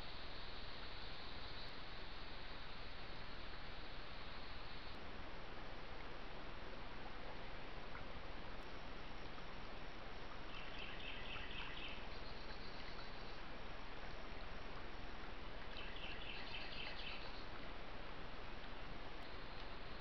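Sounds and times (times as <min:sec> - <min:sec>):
steady background hiss: 0:00.0 - 0:20.0.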